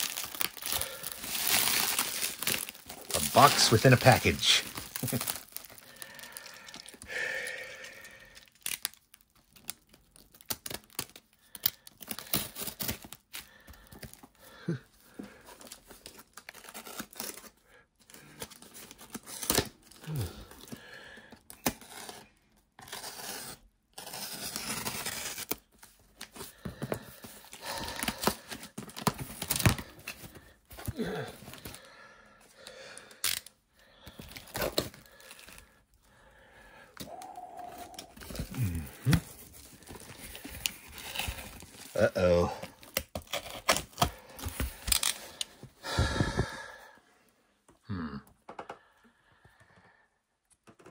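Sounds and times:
packaging ripping and crinkling: 0.0 - 14.3, 27.6 - 31.8, 33.0 - 35.8, 37.0 - 45.6.

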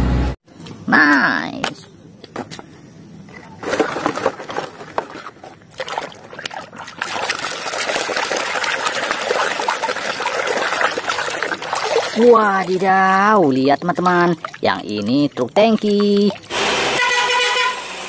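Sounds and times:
water swishing and trickling: 3.2 - 16.6
water splashing in a basin: 3.6 - 16.7.

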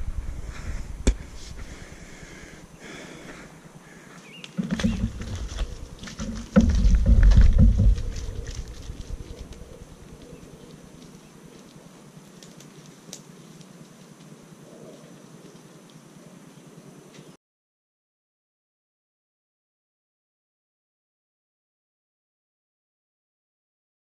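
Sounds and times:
wind buffeting microphone: 0.0 - 2.4, 4.6 - 11.1
grass and reeds rustling: 0.0 - 17.4.

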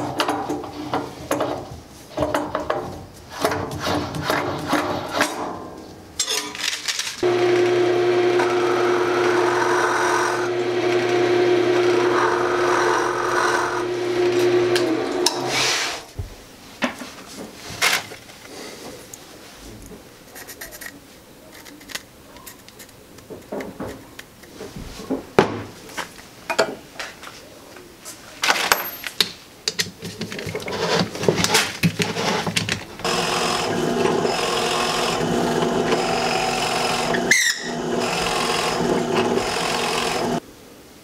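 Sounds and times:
drill press boring into wood: 7.2 - 15.5, 33.0 - 40.4.

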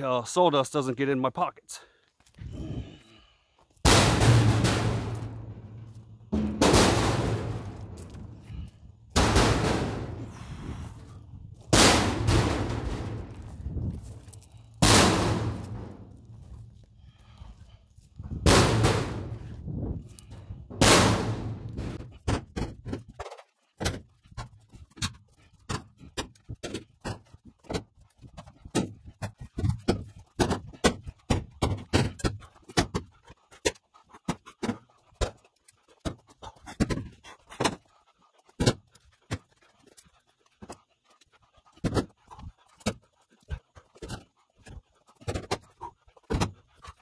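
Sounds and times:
firewood knocking into trailer: 6.4 - 8.0
firewood crashes: 11.7 - 16.3.

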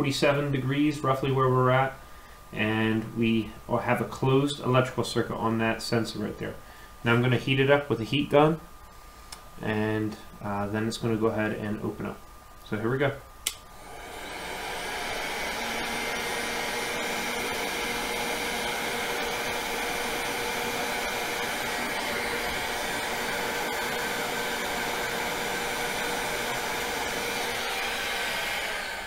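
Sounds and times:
heat gun blowing: 13.4 - 29.0.

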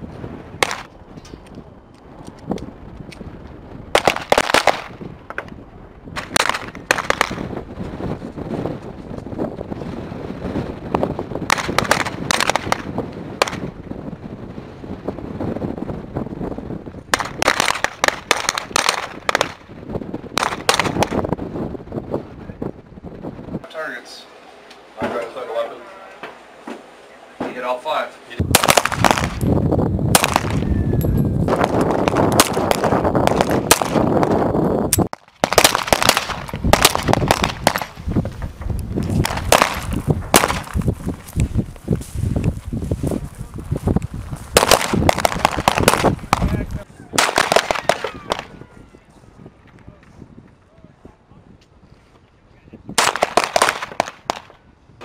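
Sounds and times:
pistol shots: 0.6 - 0.9, 4.0 - 5.0, 6.2 - 7.5, 11.5 - 13.7, 17.1 - 19.6, 20.4 - 21.2, 28.5 - 29.4, 30.1 - 30.6, 31.6 - 34.1, 35.4 - 38.0, 39.2 - 40.8, 44.6 - 46.6, 47.2 - 48.5, 53.0 - 54.6.

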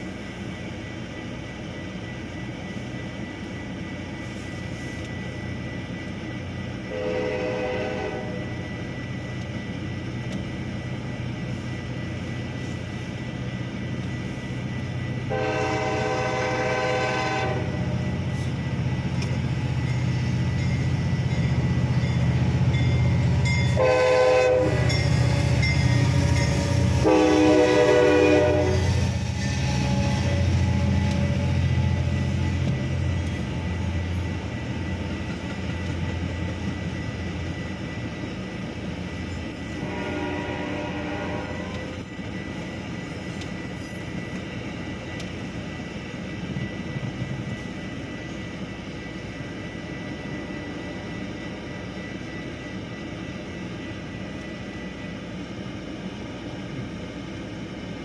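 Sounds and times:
train rumble: 0.0 - 58.0
train horn blasts: 6.9 - 8.6, 15.2 - 18.1, 23.7 - 31.6, 39.7 - 42.1.

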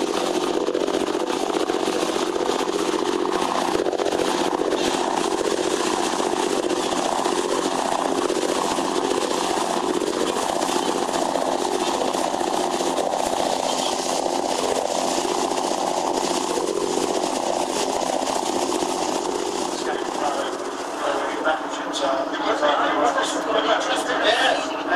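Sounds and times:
churning wake rushing: 0.0 - 24.9
diesel boat engines running: 0.0 - 24.9.

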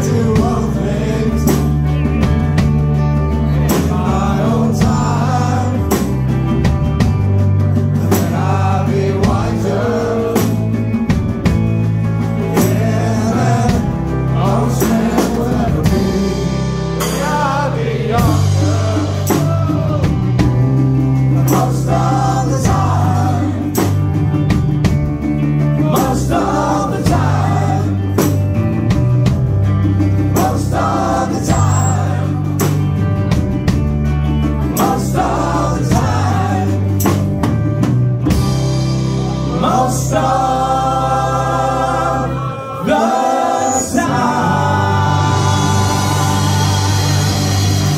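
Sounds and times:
bass line: 0.0 - 47.9
drums keeping a steady beat: 0.0 - 47.9
electric guitar: 0.0 - 47.9
person singing: 39.2 - 47.9.

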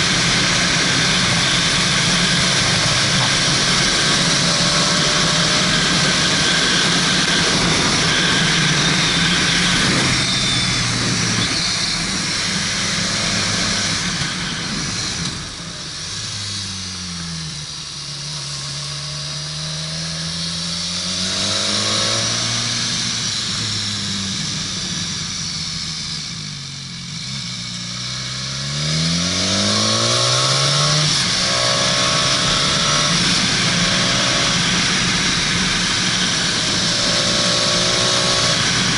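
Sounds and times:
wind rush: 0.0 - 16.2
vehicle engine: 0.0 - 38.9.

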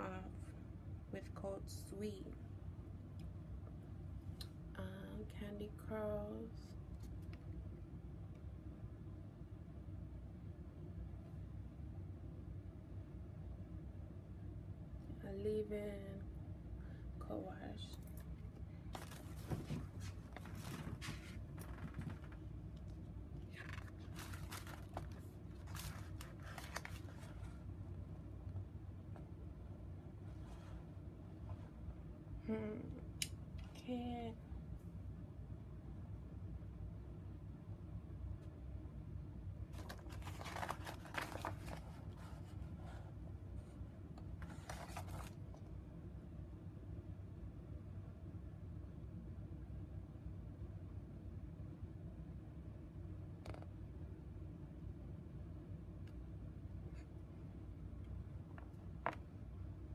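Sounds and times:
low steady hum: 0.0 - 59.9
paper and cardboard rustling: 19.0 - 22.4, 23.6 - 27.6, 39.7 - 43.0, 44.4 - 45.4.

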